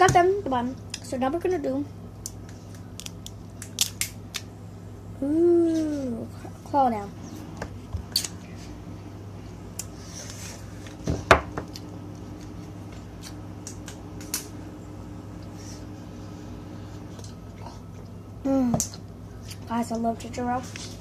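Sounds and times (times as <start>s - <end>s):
steady low hum: 0.0s - 21.0s
crab shell cracking and clicking: 3.0s - 4.5s.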